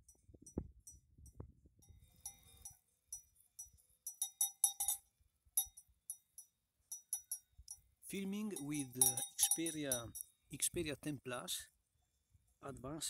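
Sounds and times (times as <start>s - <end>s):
cowbell clanking: 1.9s - 5.0s, 5.6s - 7.8s, 8.4s - 10.3s.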